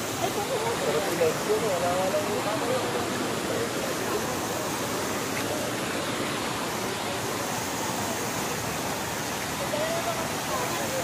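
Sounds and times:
waterfall and stream rushing: 0:00.0 - 0:11.0.

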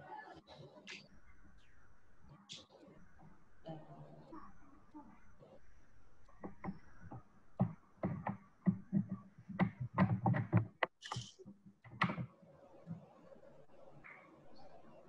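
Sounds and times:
light knocks and taps: 0:06.4 - 0:12.3.

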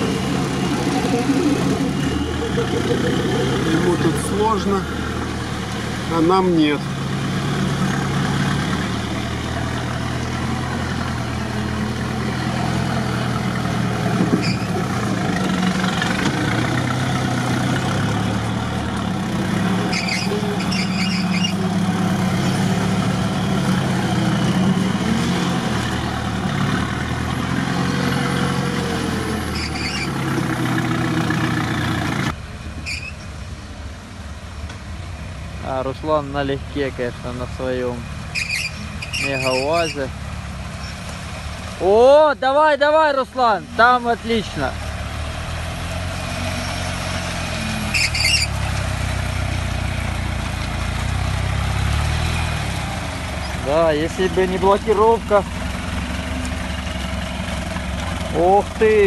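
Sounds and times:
off-road vehicle engine revving: 0:00.0 - 0:33.3, 0:35.5 - 0:59.0
short high squeaks: 0:14.4 - 0:14.8, 0:19.8 - 0:21.7, 0:29.5 - 0:30.2, 0:32.8 - 0:33.3, 0:38.3 - 0:40.1, 0:47.7 - 0:48.7.

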